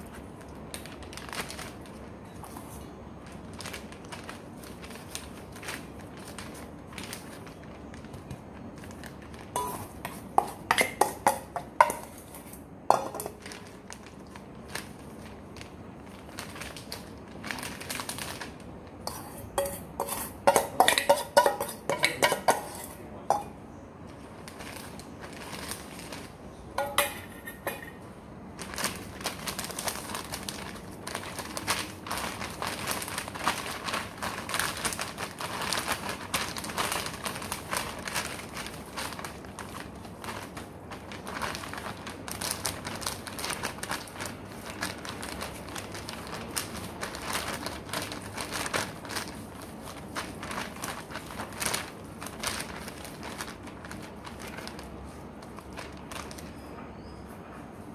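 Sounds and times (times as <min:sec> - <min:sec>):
plastic bag crinkling: 0:00.0 - 0:56.7
metal clinking against steel bowl: 0:09.6 - 0:13.4, 0:19.1 - 0:23.6, 0:26.8 - 0:28.0.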